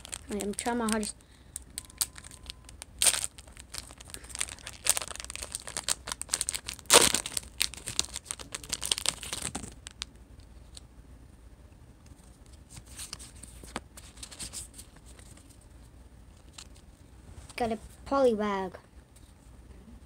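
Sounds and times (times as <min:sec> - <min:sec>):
wrapper crinkling and tearing: 0:00.0 - 0:10.8.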